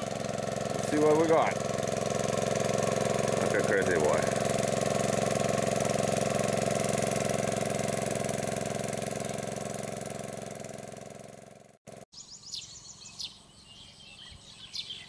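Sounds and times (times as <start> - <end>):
small water pump engine running: 0.0 - 12.1
bird chirps: 12.2 - 15.0.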